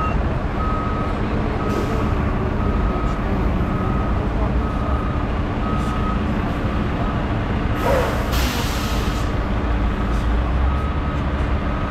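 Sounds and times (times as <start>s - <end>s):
backup alarm beeping: 0.0s - 1.8s
diesel truck engine running: 0.0s - 11.9s
air brakes hissing: 7.8s - 9.4s.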